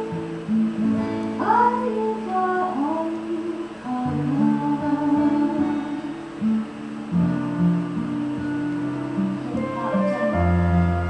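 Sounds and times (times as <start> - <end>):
plucked acoustic guitar: 0.0 - 11.0
wordless singing: 9.3 - 11.0.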